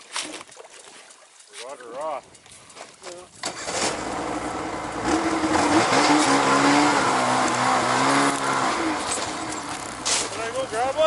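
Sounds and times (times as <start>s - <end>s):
ice auger engine revving: 3.4s - 11.0s.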